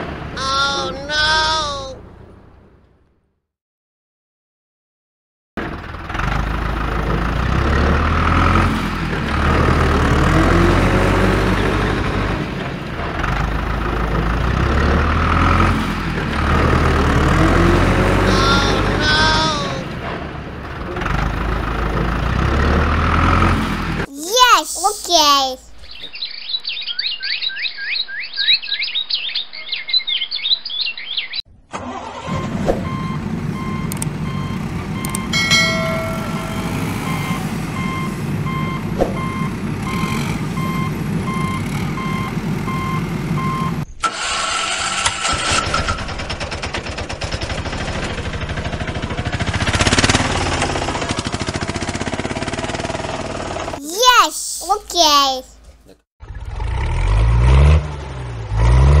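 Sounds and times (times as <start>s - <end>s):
truck engine running: 5.6s - 24.0s, 32.0s - 43.8s
rough engine sound: 5.6s - 24.1s, 31.8s - 43.4s, 44.0s - 53.8s
reversing alarm beeping: 32.3s - 43.8s.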